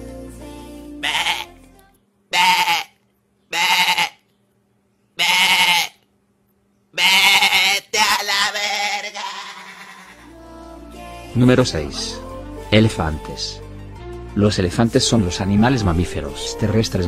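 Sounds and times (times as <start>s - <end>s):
soft background music: 0.0s - 2.0s, 10.2s - 17.0s
lamb bleating: 1.0s - 1.6s, 2.3s - 4.2s, 5.2s - 6.0s, 7.0s - 10.3s.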